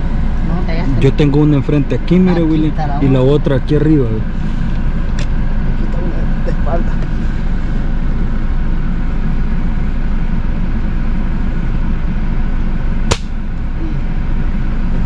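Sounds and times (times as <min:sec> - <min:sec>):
steady low rumble: 0:00.0 - 0:15.0
air rifle shot crack: 0:13.1 - 0:13.4.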